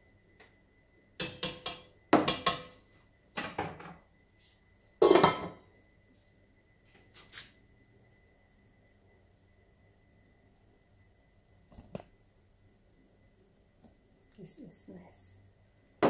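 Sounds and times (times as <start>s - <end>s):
utensils and dishes clinking: 5.0s - 5.6s.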